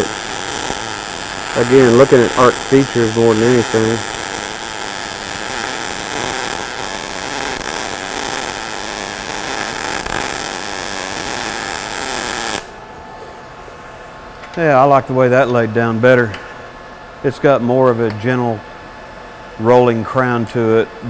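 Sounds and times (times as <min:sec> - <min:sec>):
welding arc sizzling: 0:00.0 - 0:12.9.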